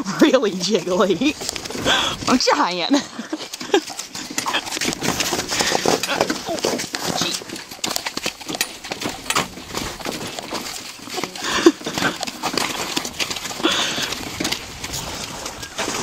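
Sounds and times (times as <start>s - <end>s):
pony hooves clip-clopping: 0.0s - 16.0s
cart and harness knocking: 3.3s - 16.0s.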